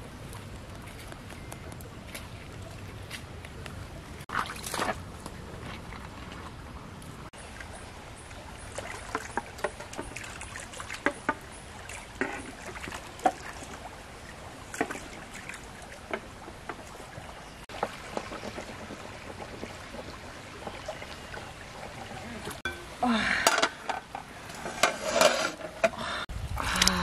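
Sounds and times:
stream flowing: 0:00.0 - 0:27.0
water plops and gurgles: 0:04.2 - 0:24.7.

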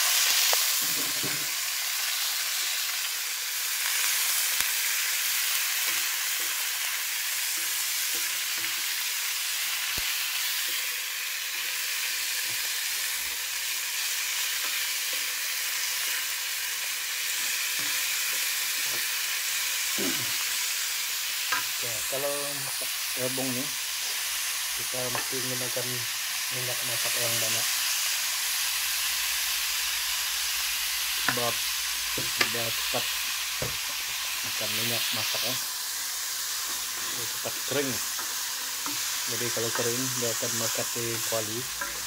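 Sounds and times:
vegetables sizzling in hot oil: 0:00.0 - 0:42.0.

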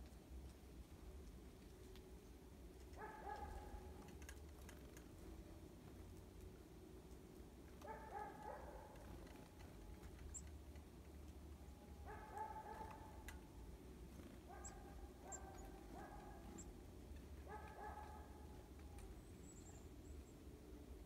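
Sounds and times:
distant dog barking: 0:03.0 - 0:03.9, 0:07.8 - 0:09.0, 0:12.0 - 0:13.2, 0:14.5 - 0:16.7, 0:17.4 - 0:18.5.

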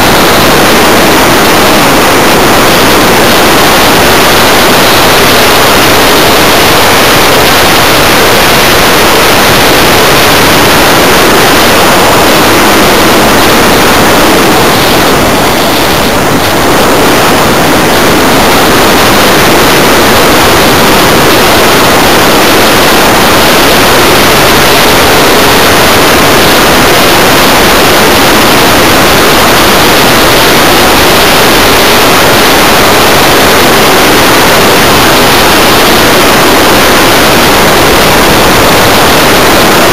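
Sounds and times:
air rushing over microphone: 0:00.0 - 0:39.9.

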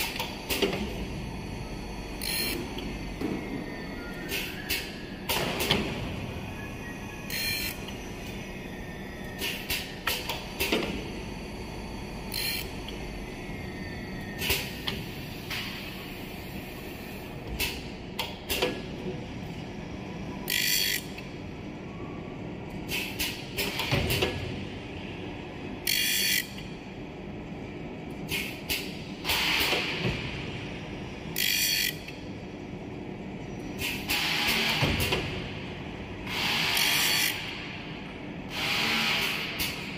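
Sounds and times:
mechanism clicks and clunks: 0:00.0 - 0:01.1, 0:04.1 - 0:06.2, 0:09.3 - 0:11.1, 0:17.4 - 0:19.0, 0:22.7 - 0:24.6
machine motors humming: 0:00.0 - 0:39.9.

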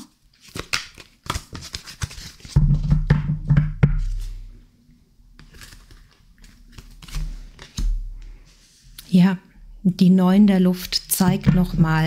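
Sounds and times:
cards shuffling: 0:00.4 - 0:02.6, 0:05.4 - 0:08.0.

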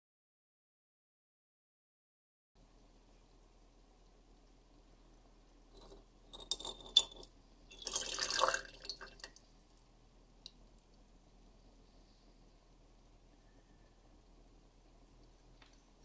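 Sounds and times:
small drips: 0:03.1 - 0:11.4
glass clinks: 0:05.8 - 0:08.4
liquid pouring and splashing: 0:05.8 - 0:09.5.

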